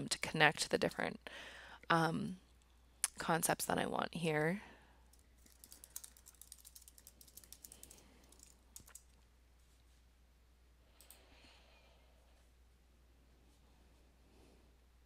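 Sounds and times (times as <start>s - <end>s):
faint room hiss: 0.0s - 15.0s
keyboard typing: 5.1s - 9.2s
soft rustle: 9.0s - 10.2s.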